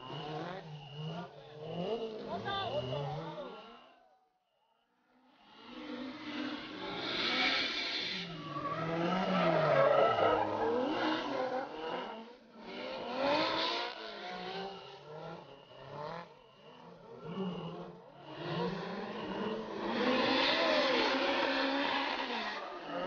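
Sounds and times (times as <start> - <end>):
car engines revving: 0.0 - 4.2, 5.0 - 23.0.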